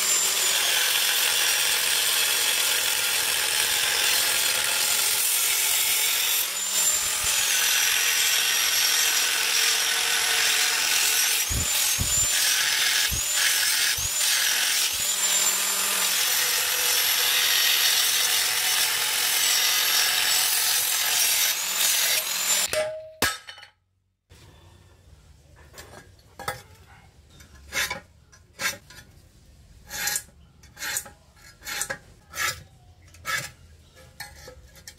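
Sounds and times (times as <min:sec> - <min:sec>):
angle grinder cutting steel: 0:00.0 - 0:22.8.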